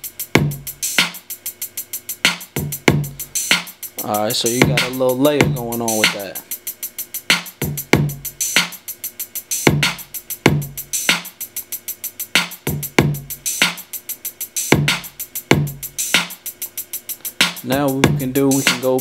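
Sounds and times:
open hi-hats: 0.0 - 19.0
rapid hi-hat ticks: 0.0 - 19.0.

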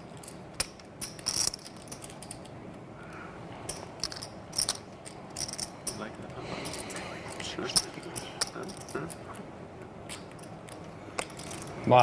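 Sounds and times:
poker chips clicking: 3.7 - 6.0, 6.6 - 9.2.

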